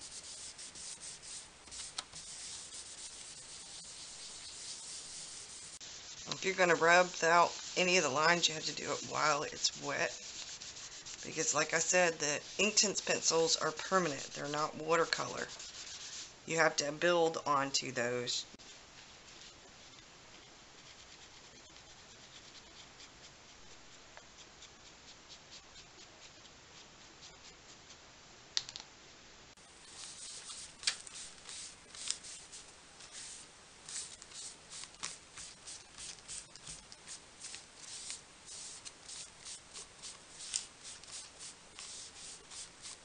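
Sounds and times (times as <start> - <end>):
wipe rubbing on paper: 0.0 - 13.3, 29.6 - 43.0.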